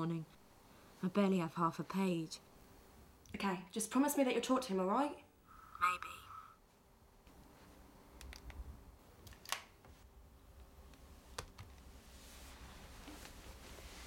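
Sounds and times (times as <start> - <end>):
low room hum: 0.0 - 14.0
laptop keys tapping: 10.9 - 11.9.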